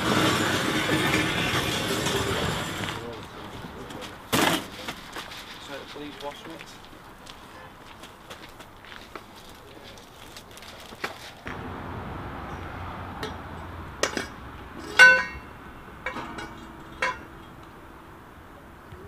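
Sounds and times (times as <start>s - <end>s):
metal poles clanking: 13.2s - 17.8s
loud ringing metal clang: 14.0s - 17.6s.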